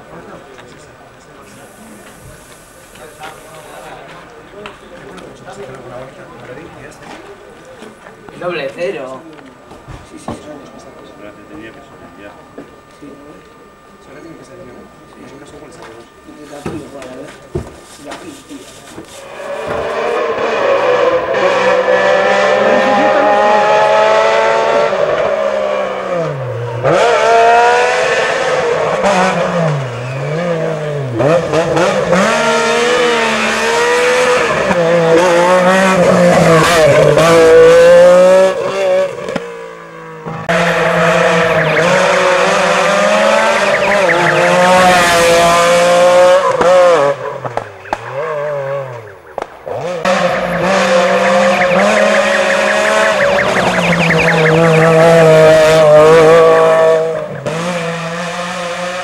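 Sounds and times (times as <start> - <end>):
rally car engine revving: 0.0 - 59.0.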